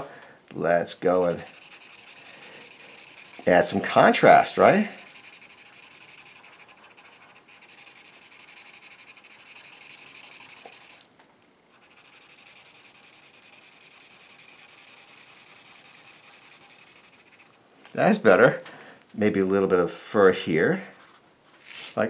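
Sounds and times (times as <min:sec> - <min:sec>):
marker scratching on paper: 0:01.2 - 0:11.1, 0:11.8 - 0:17.6, 0:20.2 - 0:21.2.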